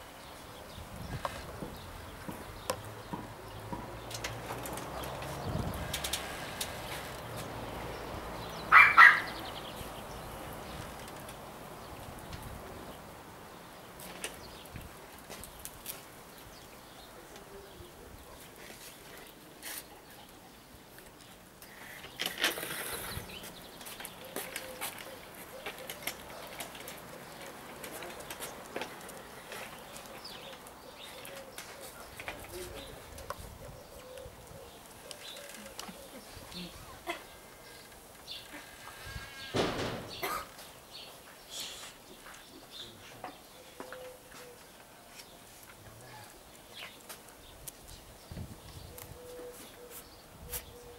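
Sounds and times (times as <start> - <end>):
outdoor background hiss: 0.0 - 50.9
soft wavering cooing calls: 32.9 - 37.7.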